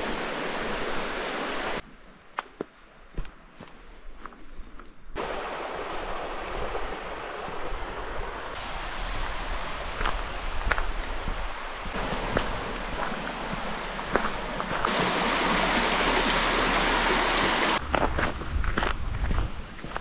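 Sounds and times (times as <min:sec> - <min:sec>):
stream rushing: 0:00.0 - 0:01.8, 0:05.2 - 0:17.8.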